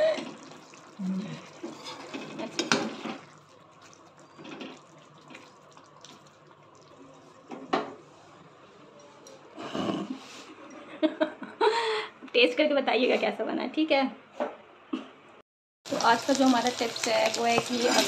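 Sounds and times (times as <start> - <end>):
thick gravy sloshing: 0.2 - 9.2.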